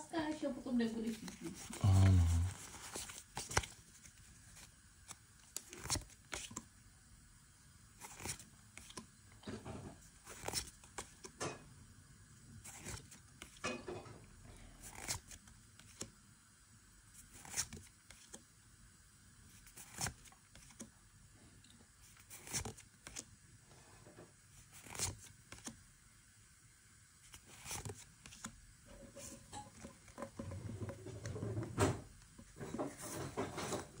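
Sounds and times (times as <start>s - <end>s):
trading cards sliding: 2.5s - 6.7s, 8.0s - 9.1s, 10.2s - 11.4s, 12.6s - 13.6s, 14.8s - 16.1s, 17.2s - 18.4s, 19.6s - 20.9s, 22.0s - 23.3s, 24.6s - 25.8s, 27.3s - 28.5s.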